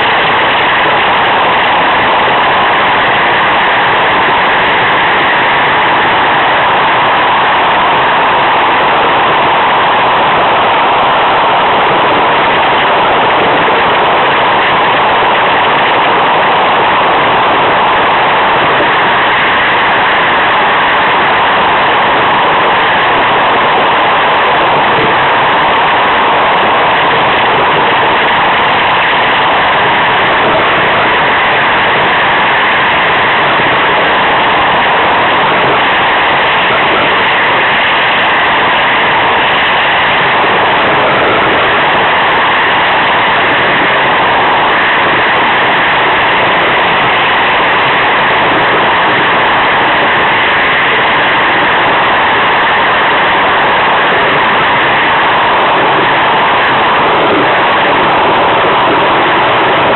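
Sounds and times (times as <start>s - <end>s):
wind rushing over boat: 0.0s - 59.9s.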